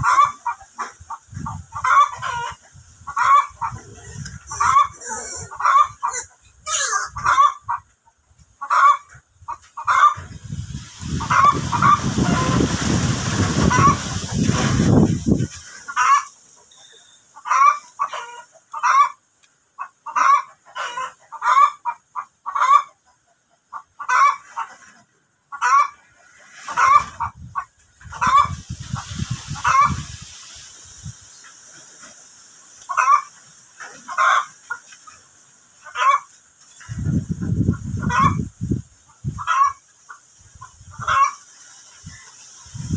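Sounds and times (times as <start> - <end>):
chickens clucking: 0.0 - 42.9.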